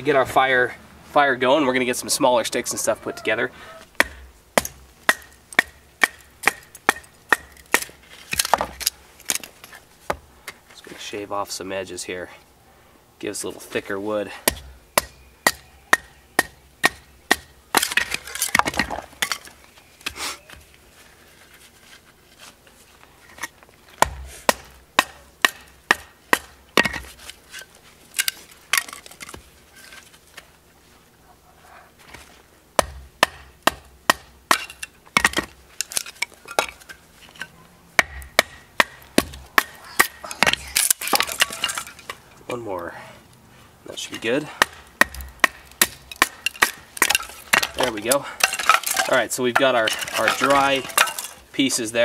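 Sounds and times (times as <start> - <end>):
wood cracking and splintering: 44.6 - 51.4.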